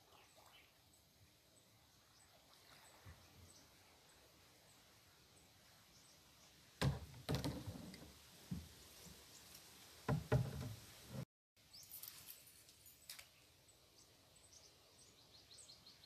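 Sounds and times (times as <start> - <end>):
paddle knocking on boat hull: 6.8 - 8.7, 10.1 - 11.2
paddle striking water: 6.8 - 8.8, 10.1 - 11.2.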